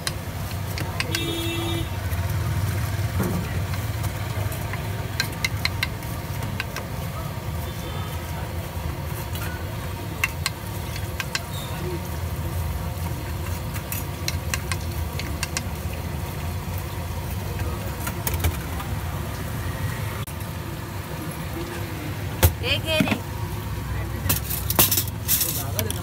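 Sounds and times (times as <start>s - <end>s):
street traffic rumble: 0.0s - 26.0s
knife tapping on wooden board: 5.2s - 6.0s.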